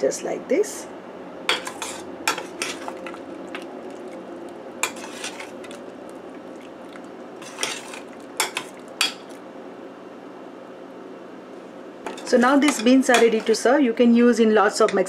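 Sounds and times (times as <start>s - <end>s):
metal spoon clinking in pot: 1.5s - 2.9s, 7.4s - 9.3s.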